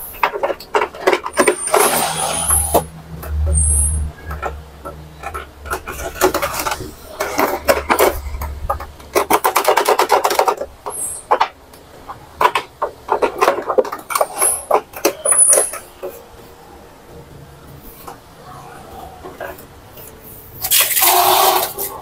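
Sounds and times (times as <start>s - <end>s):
inkjet printer clicking and ratcheting: 4.3s - 11.6s.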